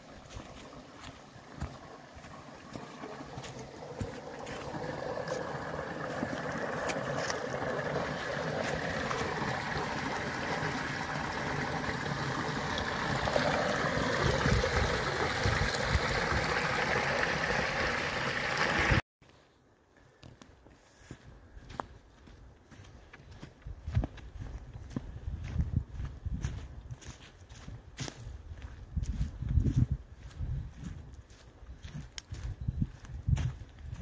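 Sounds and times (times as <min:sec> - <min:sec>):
footsteps crunching on dry leaves: 0:00.0 - 0:09.6, 0:20.7 - 0:34.0
brook splashing over rocks: 0:00.0 - 0:19.0.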